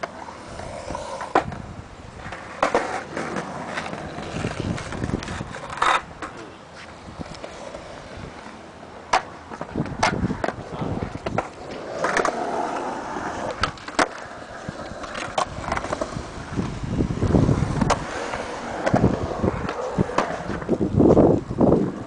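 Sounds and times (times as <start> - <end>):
sharp skateboard clacks: 0.0 - 1.6, 9.1 - 12.8
skate wheels rolling on concrete: 0.0 - 22.0.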